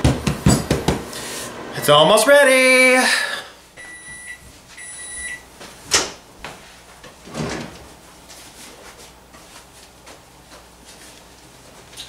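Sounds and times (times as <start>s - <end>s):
microwave oven beep: 1.7s - 2.2s, 3.8s - 5.5s.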